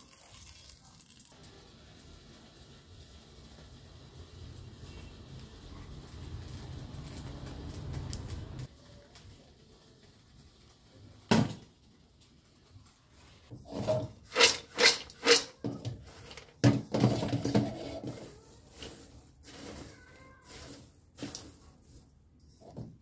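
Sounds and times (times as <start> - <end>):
hand rustling popcorn: 3.0 - 23.0
popcorn rattling in steel bowl: 13.6 - 22.4.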